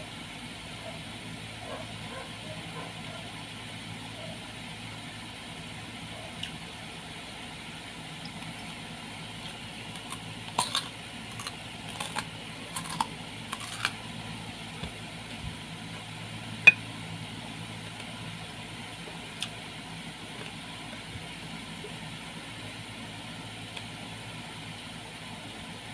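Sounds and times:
electric fan humming: 0.0 - 25.9
crisp fruit bites and chewing: 8.2 - 14.1.

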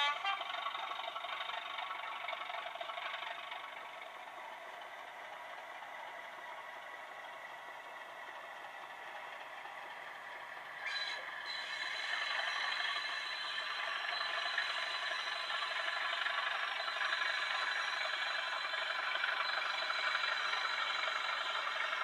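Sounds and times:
model locomotive running on track: 0.0 - 22.0.

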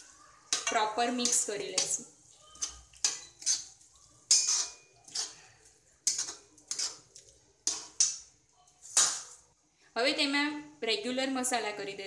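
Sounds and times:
metal spatula scraping a pan: 0.0 - 9.4.

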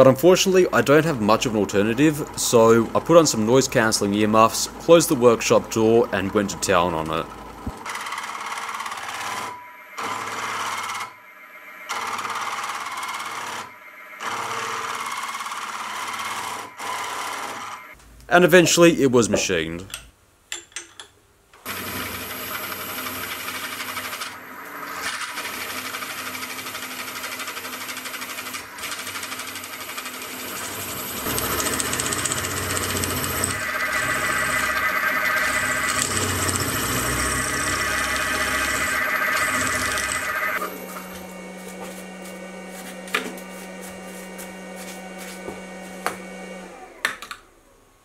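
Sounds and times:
milling machine cutting steel: 28.4 - 43.9
steady machine hum: 29.8 - 47.0.

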